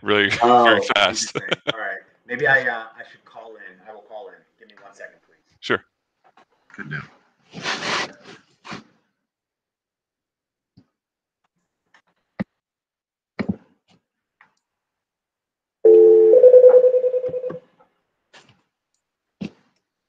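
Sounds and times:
electronic telephone tone: 15.9s - 17.6s.

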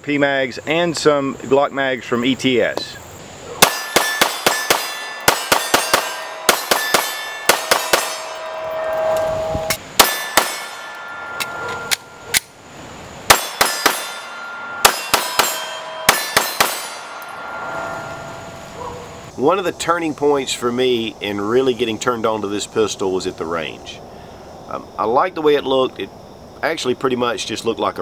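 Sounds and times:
pistol shots: 3.6s - 8.6s, 10.0s - 12.5s, 13.3s - 17.4s
metallic ringing clang: 3.6s - 19.4s.

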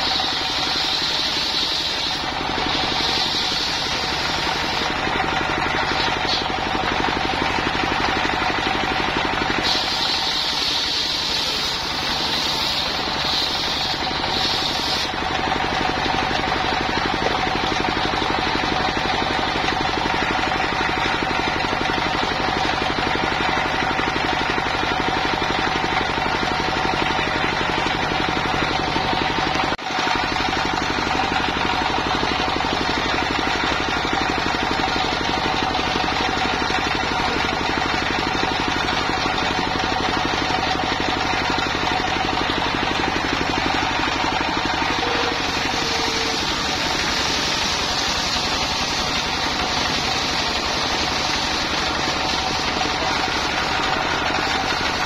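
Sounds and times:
saw blade cutting log: 0.0s - 21.3s, 34.1s - 55.0s
diesel engine chugging: 0.0s - 55.0s.

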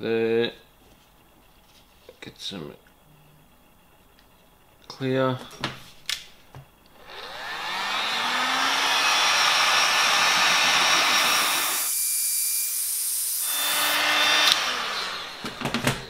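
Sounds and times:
heat gun fan blowing: 7.0s - 12.1s, 13.4s - 16.0s
click: 14.4s - 14.6s.

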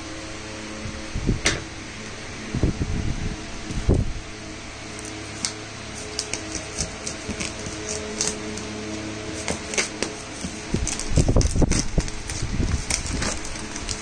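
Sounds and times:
steady hum: 0.0s - 14.0s
plastic shrink-wrap crackling: 4.9s - 14.0s.

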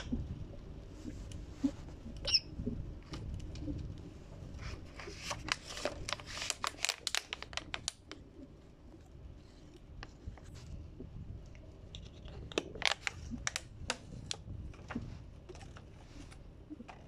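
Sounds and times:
parrot chirp: 2.2s - 2.5s
plastic bottle crinkling: 4.9s - 8.2s, 11.9s - 17.0s.

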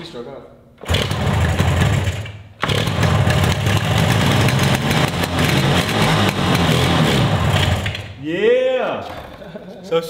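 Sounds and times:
two-stroke motorcycle engine running: 0.9s - 8.1s.

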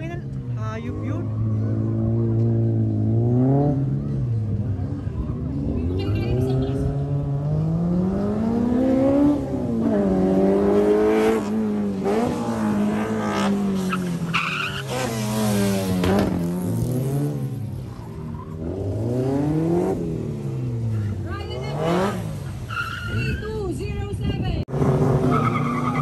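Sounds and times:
tyres skidding and squealing: 10.2s - 16.6s, 17.3s - 26.0s.

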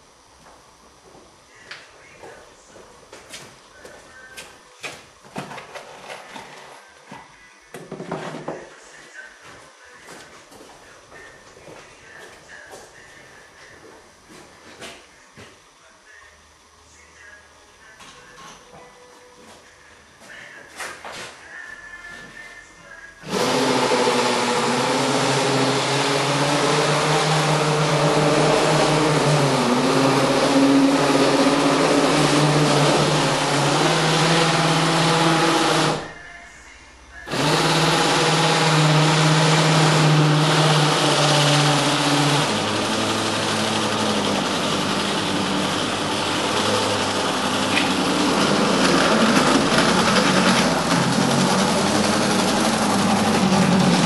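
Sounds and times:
model tram motor whine: 23.2s - 36.2s, 37.2s - 54.0s.

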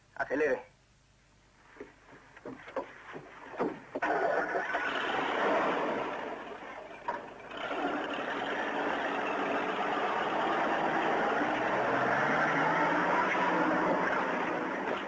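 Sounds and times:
truck engine revving hard: 4.0s - 6.6s, 7.5s - 15.0s.

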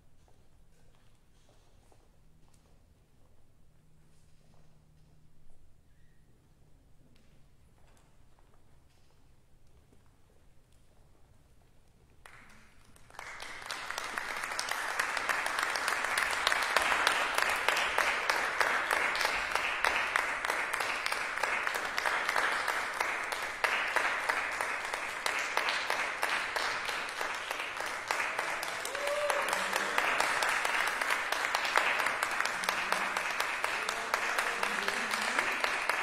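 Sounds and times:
audience applauding: 12.2s - 36.0s.

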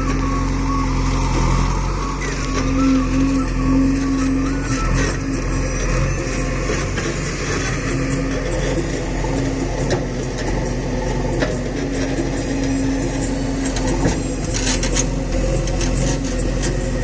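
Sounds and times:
diesel engine running under load: 0.0s - 17.0s.

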